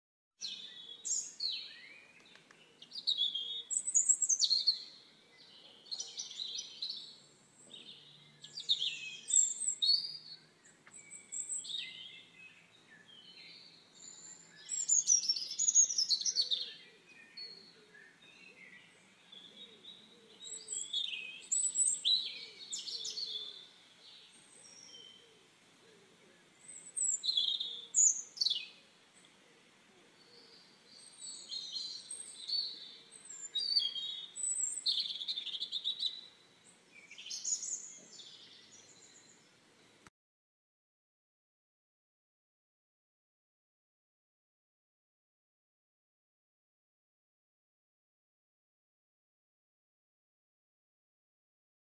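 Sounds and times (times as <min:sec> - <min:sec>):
small birds singing: 0:00.4 - 0:40.1.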